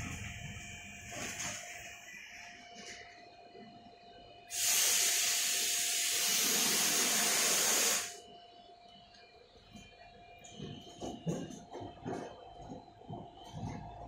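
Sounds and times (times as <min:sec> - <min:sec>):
loud steady hiss: 0:04.5 - 0:08.2.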